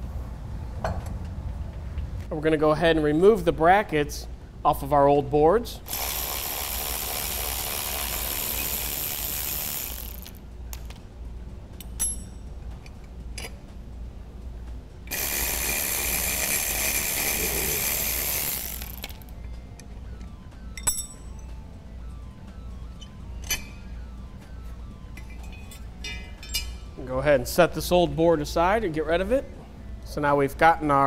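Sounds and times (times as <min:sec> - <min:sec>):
electric ratchet running: 0:05.9 - 0:10.4, 0:15.1 - 0:19.4.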